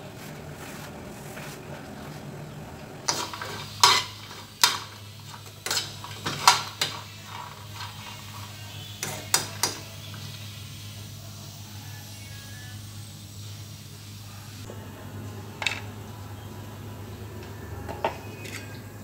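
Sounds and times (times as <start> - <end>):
metal spoon scraping frying pan: 3.1 - 10.4.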